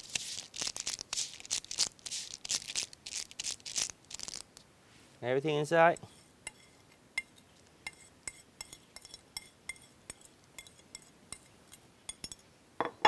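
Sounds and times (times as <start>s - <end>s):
metal spoon clinking on ceramic plate: 6.0s - 11.5s, 12.1s - 13.0s.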